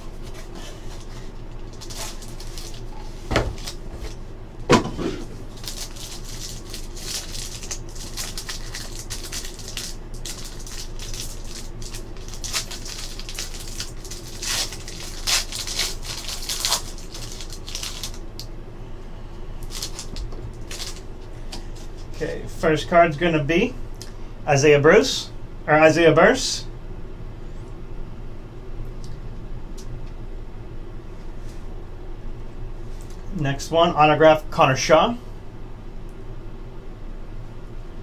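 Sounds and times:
foil wrappers crinkling and tearing: 0.1 - 4.1, 5.3 - 18.2, 19.6 - 21.1.

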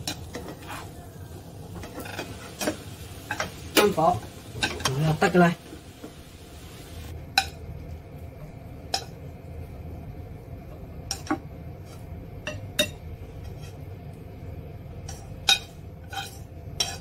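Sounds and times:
spatula scraping a wok: 0.0 - 5.2, 13.3 - 13.9, 15.0 - 17.0
low steady hum: 0.0 - 17.0.

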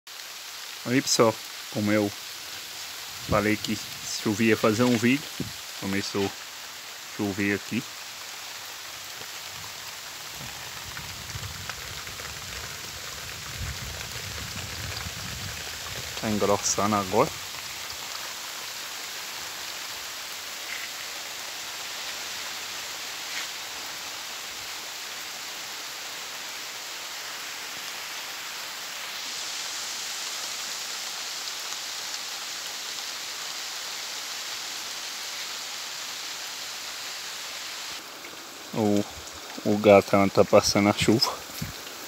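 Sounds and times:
steady rain: 0.1 - 42.0.

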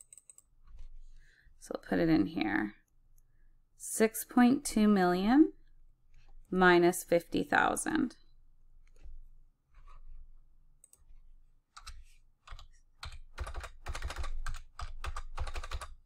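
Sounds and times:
typing on computer keyboard: 0.0 - 0.5, 11.8 - 16.0.

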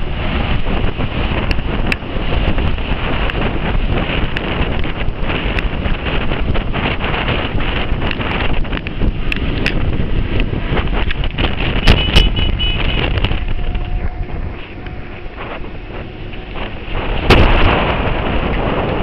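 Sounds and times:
road noise: 0.0 - 19.0
wind rushing over microphone: 0.0 - 19.0
sharp thumps: 10.4 - 18.6.

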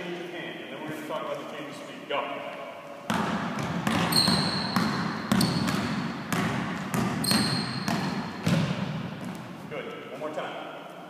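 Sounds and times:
basketball bouncing on gym floor: 3.1 - 9.6
sneakers squeaking: 3.1 - 9.7.

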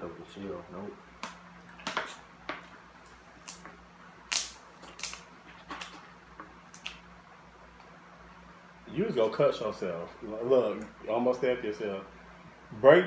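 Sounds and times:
scissors cracking crab shell: 4.3 - 5.2.

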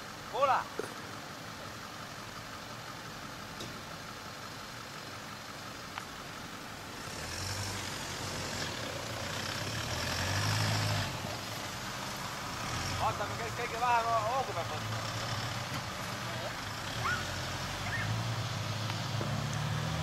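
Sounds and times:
suv engine revving: 6.2 - 20.0.

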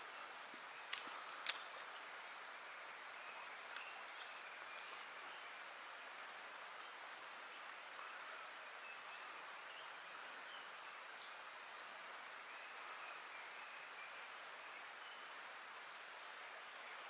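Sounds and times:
faint steady hiss: 0.0 - 17.0
faint high bird chirps: 8.8 - 14.2.

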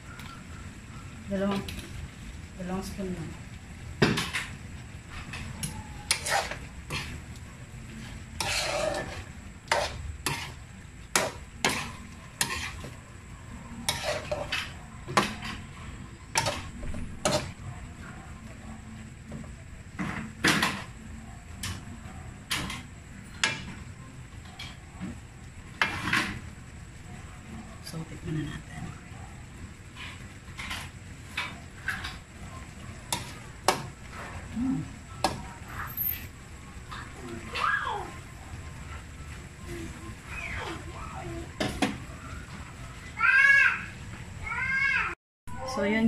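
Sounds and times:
metal ladle scraping a pot: 6.1 - 7.2, 8.2 - 10.6, 11.2 - 12.9, 13.8 - 15.6.

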